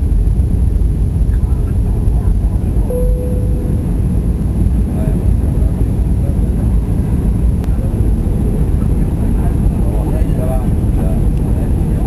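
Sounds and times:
aircraft cabin engine rumble: 0.0s - 12.0s.

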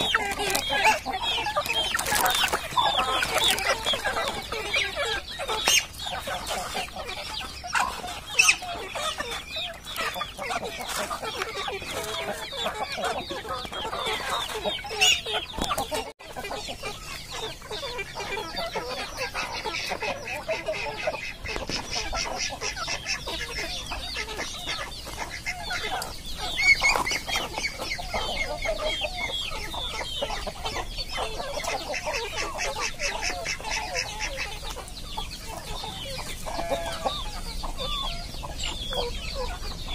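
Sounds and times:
chickens clucking: 0.0s - 39.9s.

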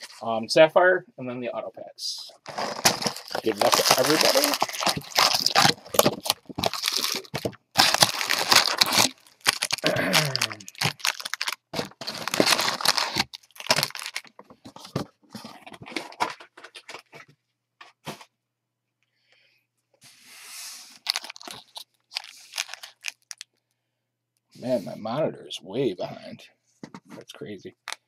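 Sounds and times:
foil wrappers crinkling: 2.4s - 14.3s, 21.0s - 23.4s.

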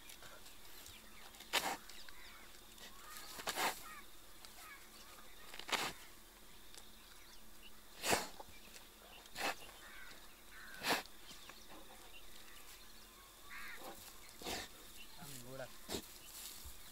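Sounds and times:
bear puffing and sucking: 0.2s - 2.0s, 2.7s - 4.0s, 5.6s - 6.0s, 7.9s - 9.8s, 10.7s - 12.2s, 13.8s - 14.9s.

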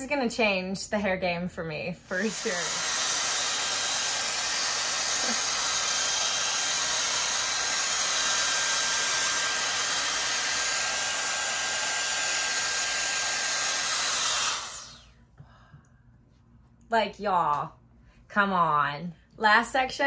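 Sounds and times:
hot-air dryer brush blowing: 2.0s - 15.1s.

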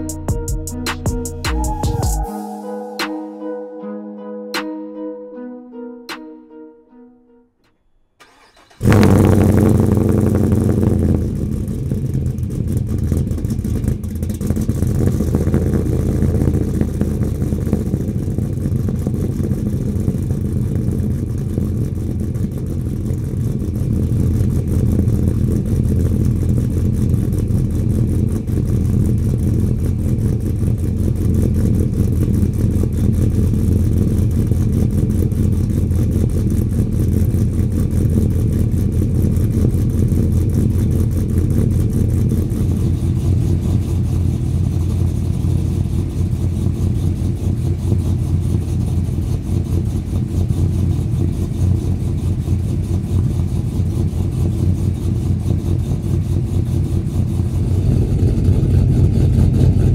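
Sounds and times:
engine cold start and idle: 8.2s - 59.9s.

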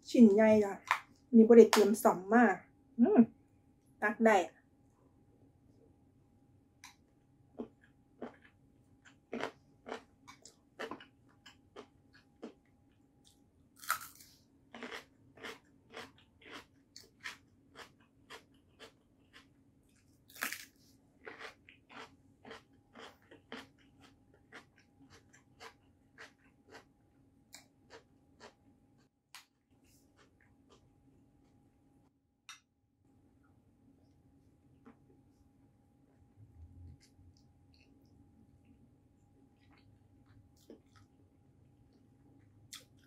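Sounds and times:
crunchy bites into vegetable: 13.8s - 17.9s, 20.3s - 23.7s
chewing with wet crunches: 13.8s - 20.6s, 21.2s - 26.9s.

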